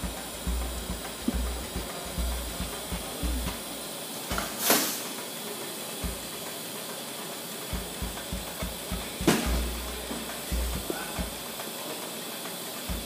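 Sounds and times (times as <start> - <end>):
welding arc hissing: 0.0 - 13.0.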